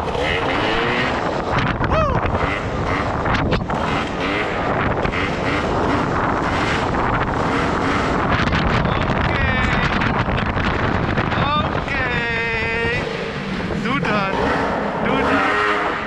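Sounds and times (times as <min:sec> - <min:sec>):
scooter engine running: 0:00.0 - 0:16.0
wind noise on microphone: 0:00.0 - 0:16.0.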